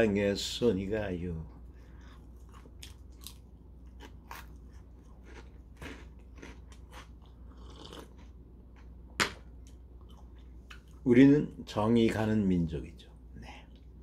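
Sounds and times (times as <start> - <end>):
crunching and chewing crackers: 1.8 - 9.0.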